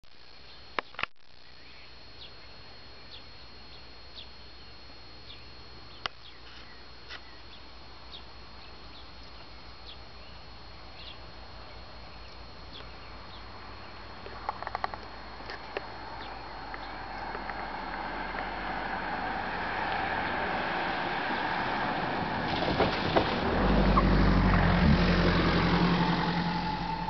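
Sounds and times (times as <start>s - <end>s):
steady high whine: 0.0s - 27.0s
bird chirping: 0.5s - 14.2s, 16.2s - 17.4s.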